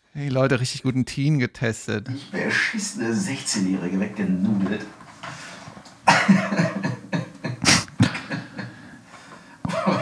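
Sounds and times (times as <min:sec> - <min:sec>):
people laughing hard: 0:06.1 - 0:09.0, 0:09.6 - 0:10.0.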